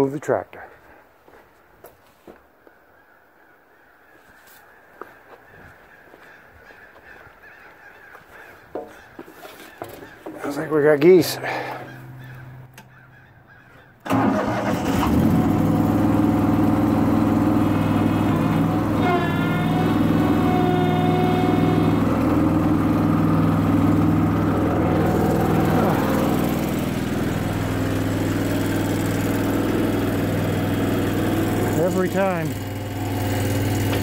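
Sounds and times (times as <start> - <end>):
loader engine running: 10.4 - 12.9, 14.0 - 34.0.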